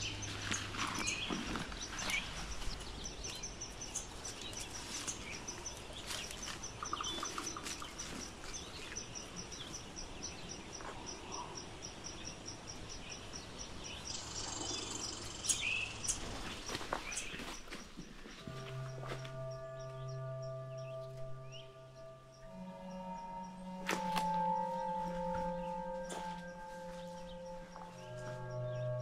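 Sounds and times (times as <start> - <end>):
bird notes: 0.0 - 17.5, 18.3 - 29.0
insect chirping: 0.0 - 29.0
footsteps crunching on trail: 0.1 - 3.0, 16.0 - 21.6, 22.4 - 29.0.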